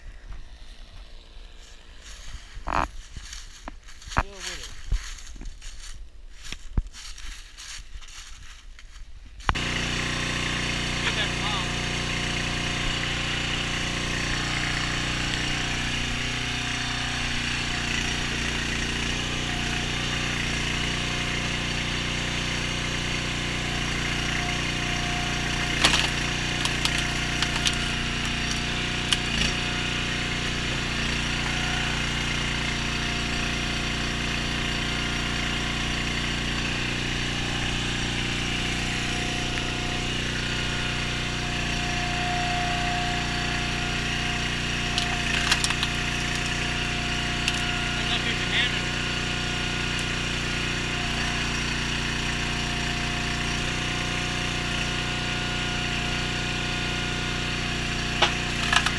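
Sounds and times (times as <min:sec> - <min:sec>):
log splitter engine running: 0:00.0 - 0:58.9
wood splitting cracks: 0:24.8 - 0:31.3, 0:44.4 - 0:47.8, 0:49.8 - 0:50.4, 0:58.0 - 0:58.9.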